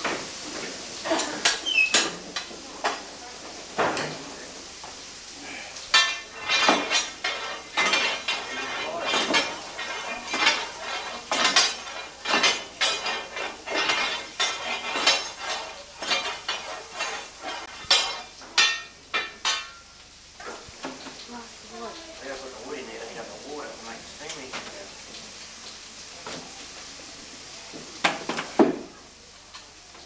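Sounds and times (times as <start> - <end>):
steel rake scraping metal grate: 5.9 - 18.8.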